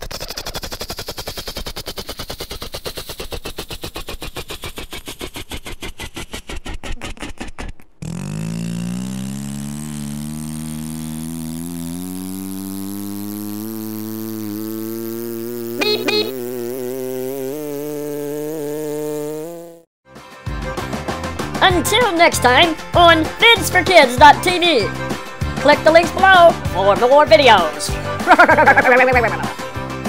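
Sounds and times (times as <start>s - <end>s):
helicopter rotor blades chopping: 0.0s - 19.6s, 21.6s - 30.0s
engine-like hum rising in pitch: 0.0s - 19.9s.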